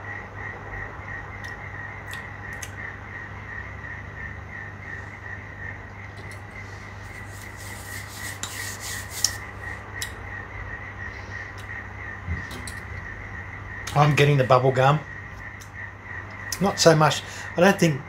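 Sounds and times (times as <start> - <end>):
steady low hum: 0.0 - 18.0
rustling rubbing noise: 7.0 - 9.5.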